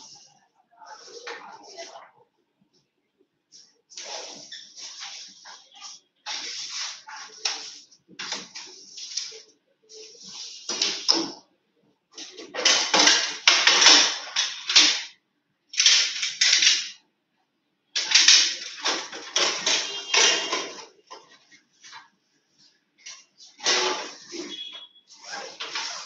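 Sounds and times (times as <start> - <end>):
clattering and rustling: 18.0 - 22.2.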